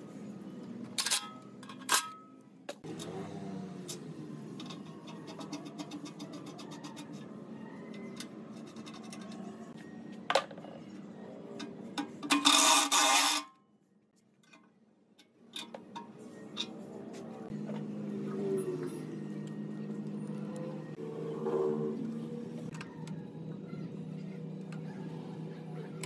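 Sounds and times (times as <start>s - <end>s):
metallic clicks and scrapes: 0.9s - 9.8s, 10.8s - 13.6s, 14.4s - 17.6s
loud rasping scrape: 12.3s - 13.5s.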